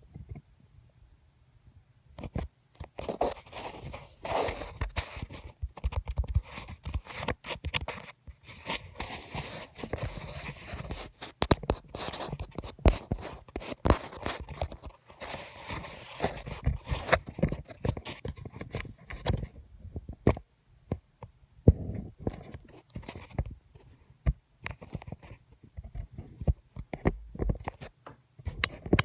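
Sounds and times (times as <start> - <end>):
rustling and crackling: 2.2 - 29.0.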